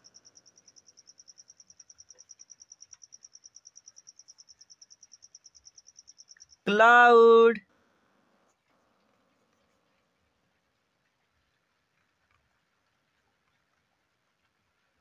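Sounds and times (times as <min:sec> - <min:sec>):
insect trilling: 0:00.0 - 0:06.7.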